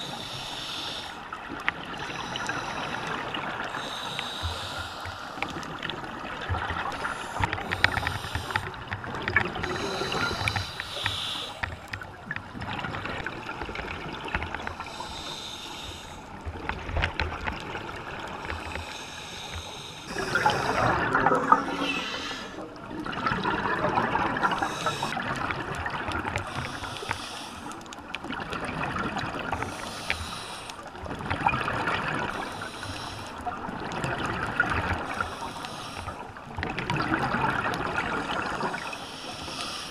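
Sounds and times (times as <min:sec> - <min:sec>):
crackle of bubbles and water: 0:00.0 - 0:39.9
diver exhaling bubbles underwater: 0:20.1 - 0:26.3.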